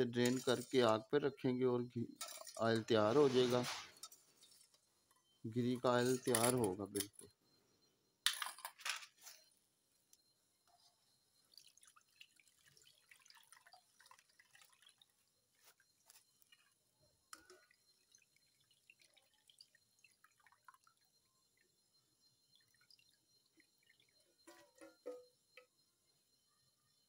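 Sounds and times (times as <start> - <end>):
water dripping from pot: 11.4 - 15.8, 16.4 - 25.7.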